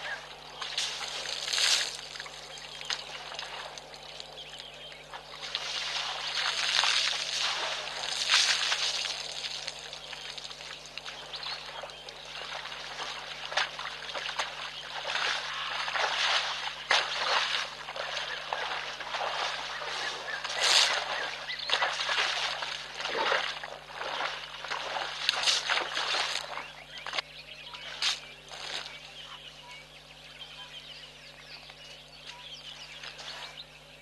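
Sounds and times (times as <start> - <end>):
elephant splashing in mud: 0.0 - 4.4, 5.1 - 27.2.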